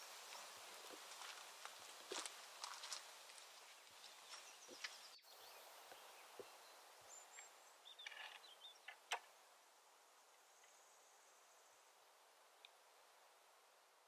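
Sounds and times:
soft hiss: 0:00.0 - 0:14.0
faint bird chirps: 0:03.6 - 0:09.2.

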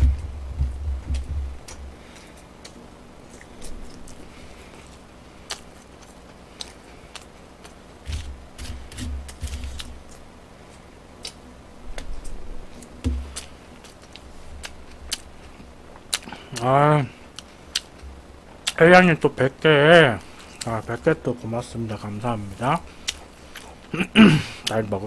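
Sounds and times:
low thumps: 0:00.0 - 0:02.0
man chewing: 0:01.1 - 0:18.8, 0:20.2 - 0:24.8.

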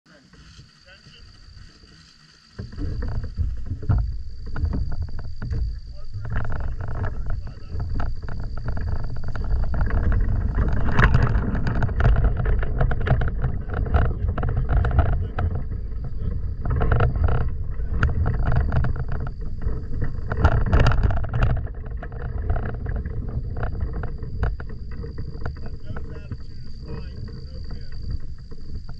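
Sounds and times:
wind buffeting microphone: 0:02.6 - 0:28.9.

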